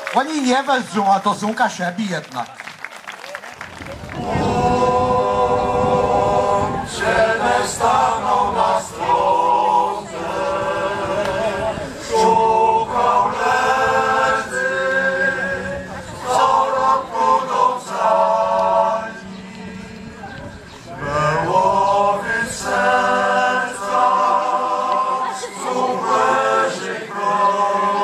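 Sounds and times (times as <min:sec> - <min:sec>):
men's choir singing a cappella: 0:04.2 - 0:28.0.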